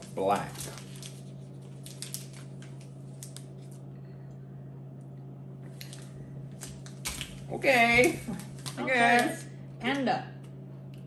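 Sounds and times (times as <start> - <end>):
plastic packaging crinkling: 0.0 - 3.9, 5.7 - 9.3
steady low hum: 0.0 - 11.0.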